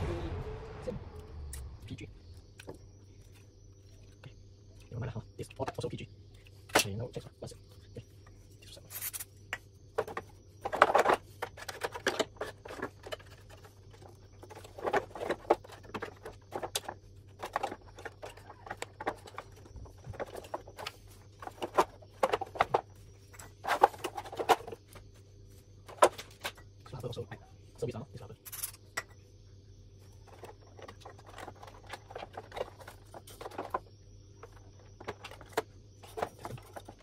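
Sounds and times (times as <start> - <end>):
faint low hum: 0.0 - 37.0
plastic parts clicking and scraping: 8.6 - 25.0, 30.2 - 37.0.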